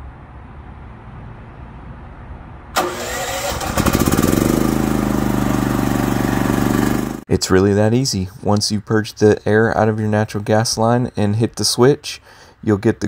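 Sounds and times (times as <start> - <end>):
starter cranking: 2.8 - 7.2
generator engine running: 2.8 - 7.3.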